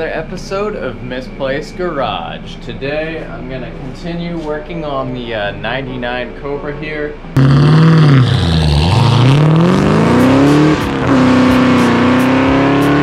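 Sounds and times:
car engine accelerating: 7.2 - 13.0.

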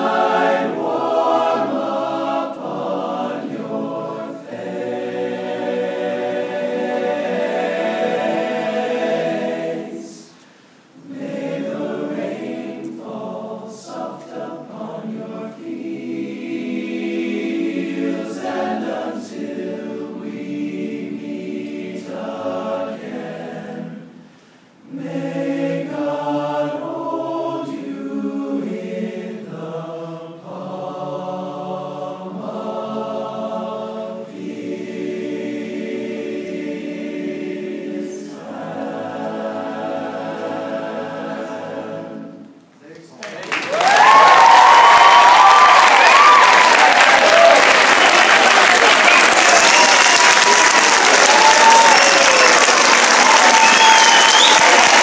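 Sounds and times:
male choir singing in harmony: 0.0 - 10.4, 11.0 - 42.6.

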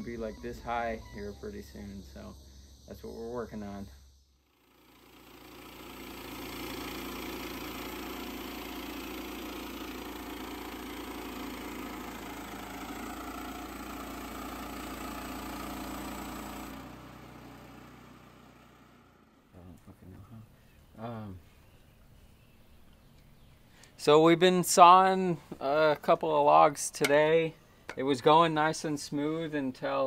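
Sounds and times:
band sawmill cutting a log: 4.5 - 19.3.

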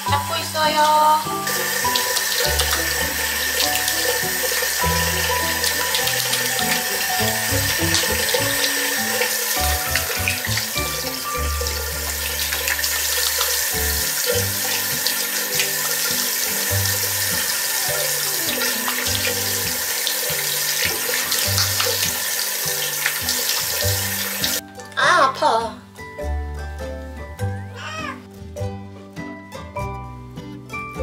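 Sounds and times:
faucet water splashing: 0.0 - 24.6.

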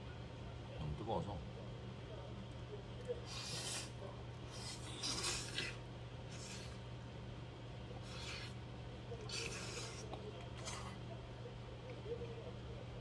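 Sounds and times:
person slurping noodles: 4.5 - 6.8, 8.0 - 8.6, 9.2 - 11.0.

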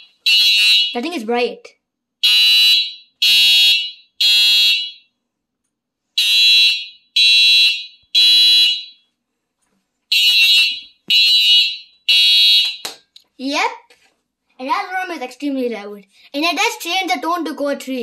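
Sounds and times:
fire alarm horn blasts: 0.2 - 1.0, 2.2 - 5.1, 6.2 - 9.0, 10.1 - 12.8.

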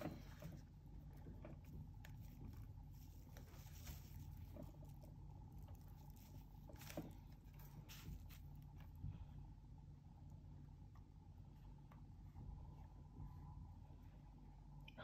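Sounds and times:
fingers pressing foam strip rustling: 0.0 - 9.2
low steady hum: 0.0 - 15.0.

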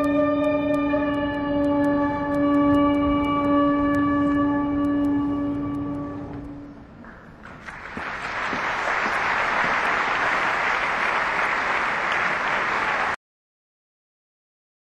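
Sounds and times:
music held note: 0.0 - 6.9
audience applause: 7.4 - 13.2.

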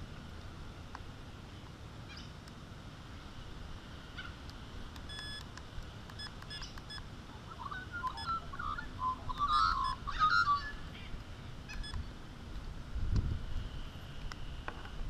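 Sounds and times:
short electronic beeps: 5.1 - 5.4, 6.2 - 10.7
birds chirping: 6.1 - 12.2
wind rumble on microphone: 7.3 - 15.0.

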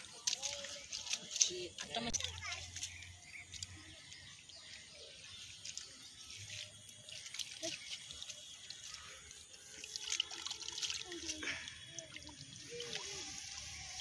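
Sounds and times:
hands splashing in muddy puddle: 0.0 - 14.0
water dripping: 0.0 - 14.0.

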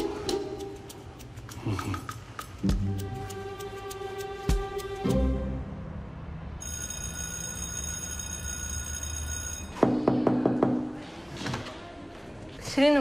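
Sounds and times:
soft background music: 2.6 - 6.0.

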